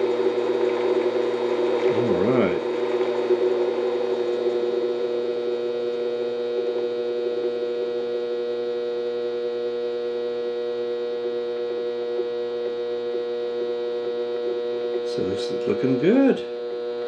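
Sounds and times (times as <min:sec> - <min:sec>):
lathe motor whining: 0:00.0 - 0:08.0.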